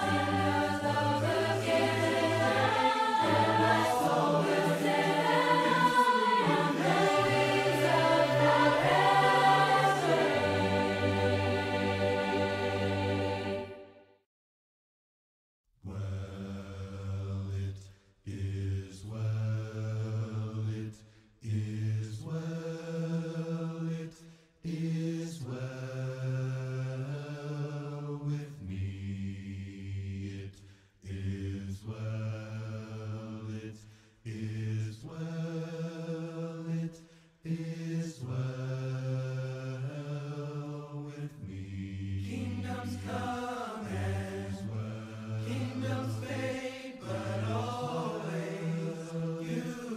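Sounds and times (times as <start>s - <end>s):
group singing a hymn a cappella: 0.0s - 14.0s, 15.9s - 49.9s.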